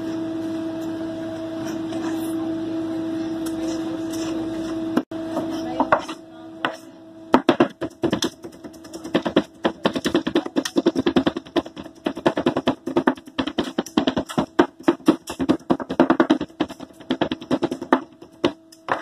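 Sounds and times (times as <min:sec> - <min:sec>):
knife chopping on plastic board: 0:07.4 - 0:19.0.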